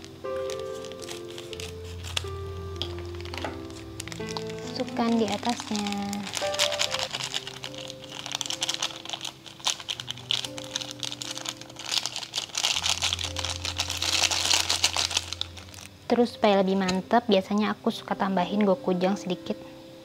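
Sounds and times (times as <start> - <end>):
flakes crackling into broth: 0.0 - 15.9
background music with held notes: 0.0 - 20.0.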